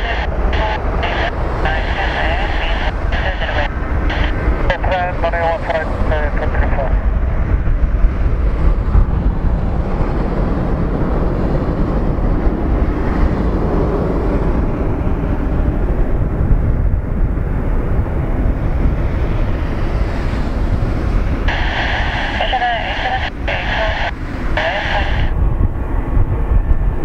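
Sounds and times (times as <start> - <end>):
radio voice: 0.0 - 7.1, 21.5 - 25.4
jet engines rumbling: 0.0 - 27.0
wind buffeting microphone: 0.0 - 27.0.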